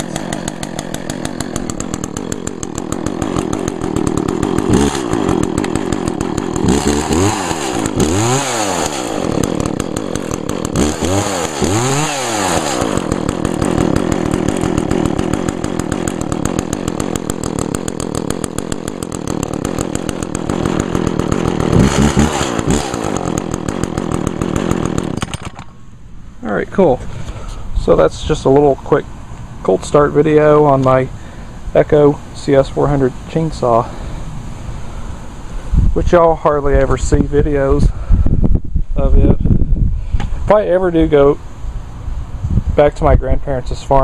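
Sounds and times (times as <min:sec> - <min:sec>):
chainsaw idling and revving: 0:00.0 - 0:26.0, 0:29.8 - 0:38.0.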